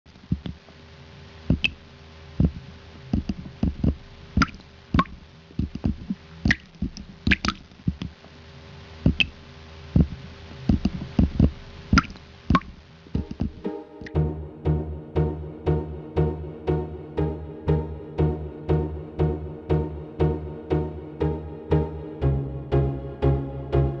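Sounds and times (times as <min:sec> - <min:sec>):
faint steady hum: 0:00.1 - 0:24.0
water dripping: 0:04.4 - 0:07.6, 0:11.9 - 0:13.6.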